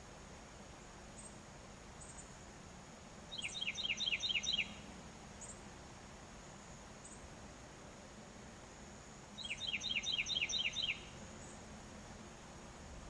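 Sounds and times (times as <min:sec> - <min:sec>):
high insect drone: 0:00.0 - 0:13.0
songbird whistled notes: 0:03.3 - 0:04.8, 0:09.4 - 0:11.2
faint high chirps: 0:03.3 - 0:05.6, 0:09.4 - 0:11.6.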